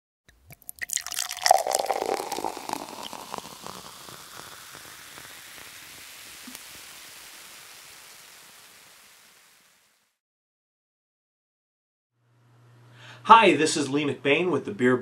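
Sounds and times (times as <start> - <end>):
liquid pouring: 0.3 - 9.5.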